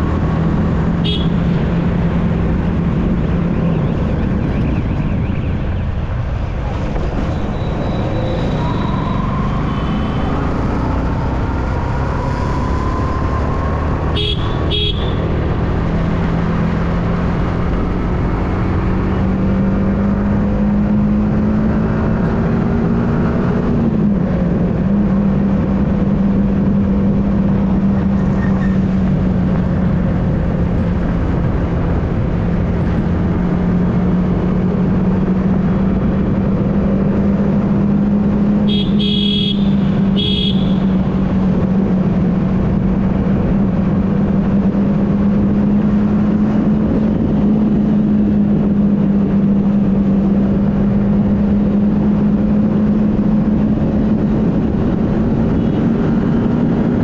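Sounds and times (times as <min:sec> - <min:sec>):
motorcycle engine cruising: 0:00.0 - 0:57.0
wind and road noise: 0:00.0 - 0:57.0
horn short blasts: 0:14.1 - 0:15.3, 0:38.6 - 0:41.0.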